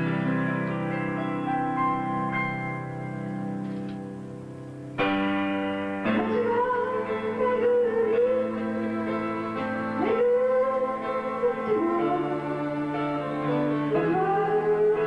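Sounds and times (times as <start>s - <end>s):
accompaniment chords: 0.0s - 15.0s
woman singing: 6.1s - 15.0s.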